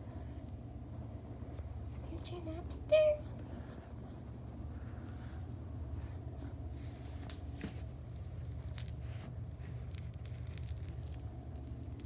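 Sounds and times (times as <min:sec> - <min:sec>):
steady low hum: 0:00.0 - 0:12.0
cat claws scratching fabric toy: 0:07.9 - 0:12.0.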